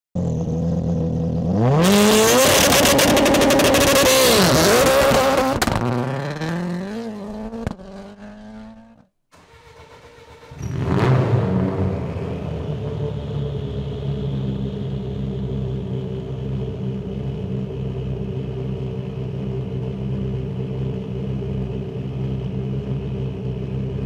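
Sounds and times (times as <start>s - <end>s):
rally car engine revving: 0.2s - 24.0s
engine crackling: 9.3s - 24.0s.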